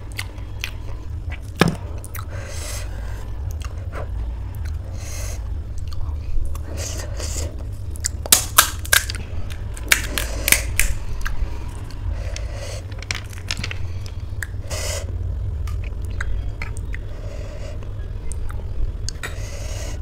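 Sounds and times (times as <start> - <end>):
crisp shells crackling: 8.3 - 11.0, 12.9 - 14.2.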